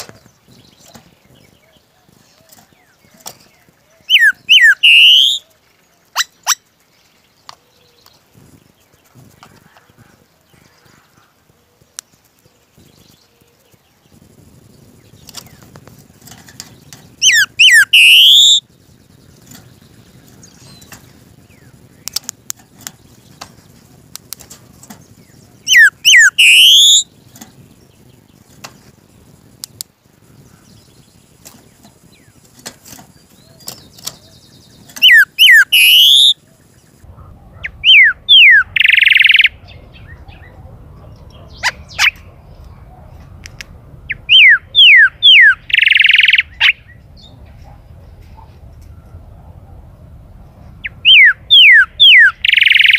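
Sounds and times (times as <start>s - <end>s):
bird singing whistled phrases: 4.0s - 5.5s, 17.2s - 18.6s, 25.6s - 27.1s, 33.4s - 36.4s, 37.6s - 40.5s, 44.1s - 47.4s, 50.8s - 52.9s
faint ticks: 29.6s - 30.6s.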